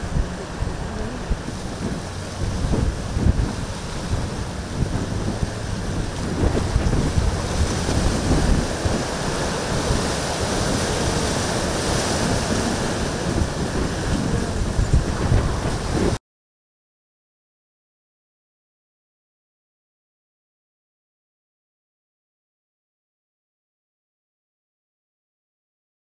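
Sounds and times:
surf breaking: 0.0s - 16.2s
wind buffeting microphone: 0.0s - 16.2s.

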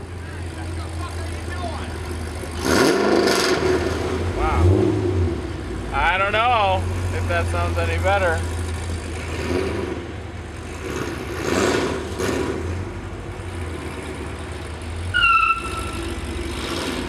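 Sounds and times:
car engine rumbling: 0.0s - 17.0s
high squeal: 15.1s - 16.2s.

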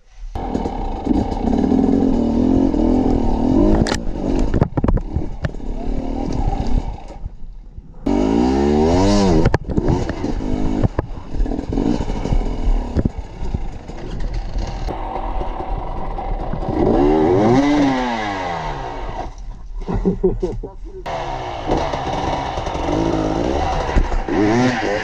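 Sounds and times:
motorcycle engines revving: 0.3s - 7.4s, 8.0s - 19.4s, 20.0s - 25.0s.

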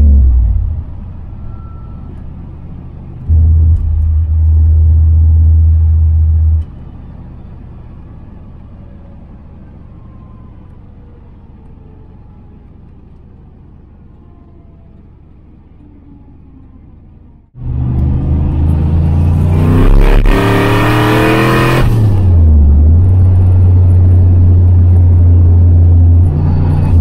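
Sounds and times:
car engine from inside cabin: 0.0s - 7.1s
loud low rumble: 3.2s - 6.8s.

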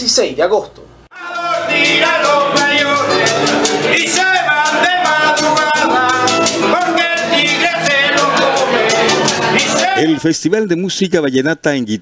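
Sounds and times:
acoustic guitars strumming: 1.1s - 10.2s
man singing: 1.1s - 10.2s.

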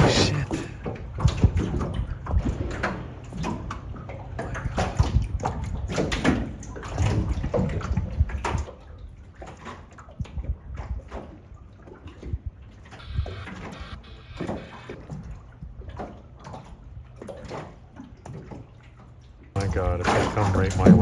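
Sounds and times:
water sloshing and splashing: 0.0s - 21.0s
low rumble: 13.0s - 15.0s.

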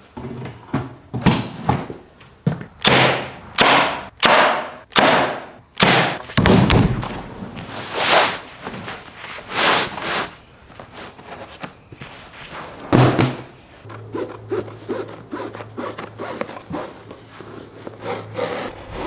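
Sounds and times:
vinyl flooring rustling: 6.2s - 13.9s, 14.6s - 19.0s.

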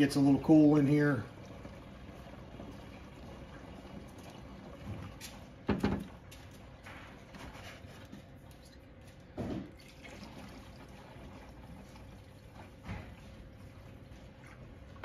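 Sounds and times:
liquid trickling into reservoir: 0.0s - 6.9s, 8.2s - 15.0s
liquid glugging from jug: 8.2s - 15.0s.

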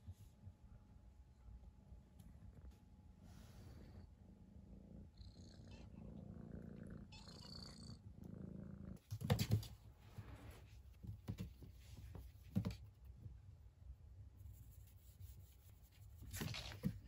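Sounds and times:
cat purring: 2.2s - 9.1s.

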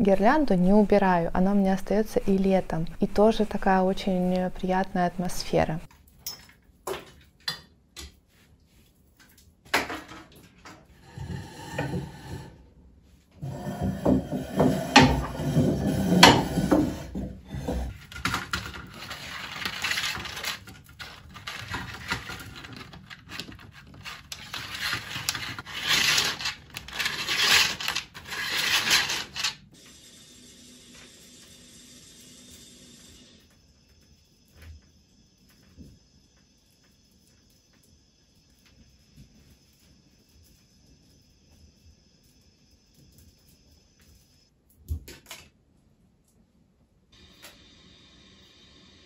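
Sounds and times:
objects rubbing and rustling: 8.1s - 29.8s.

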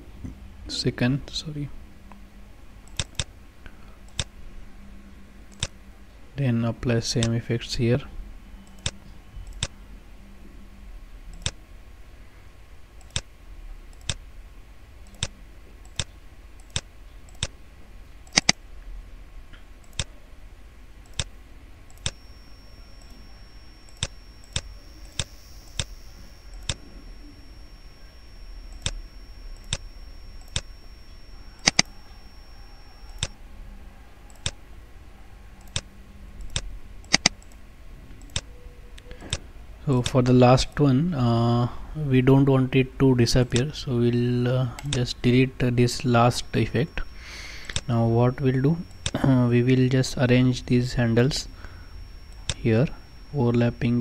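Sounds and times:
computer mouse clicking: 2.8s - 3.3s, 5.5s - 5.7s, 8.6s - 9.8s, 13.0s - 13.3s, 13.9s - 14.2s, 18.2s - 18.6s, 21.0s - 21.3s, 23.9s - 25.9s, 28.7s - 32.2s, 33.0s - 33.4s, 34.3s - 34.6s, 35.6s - 37.6s, 38.2s - 39.4s, 47.5s - 47.9s.

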